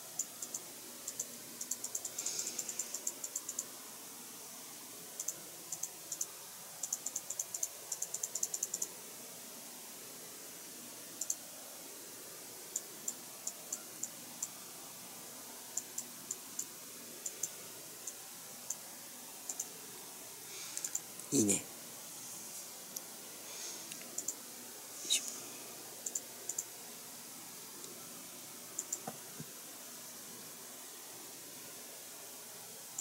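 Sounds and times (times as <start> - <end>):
faint room hiss: 0.0 - 33.0
small sharp clicks and taps: 28.8 - 29.5.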